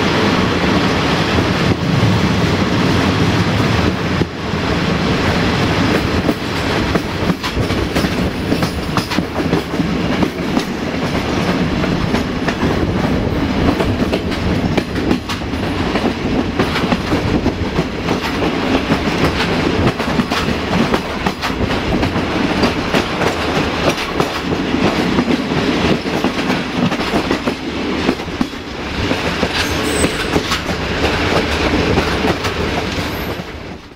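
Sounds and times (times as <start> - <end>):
train rumble: 0.0 - 33.9
wheels clicking over rail joints: 5.9 - 33.9.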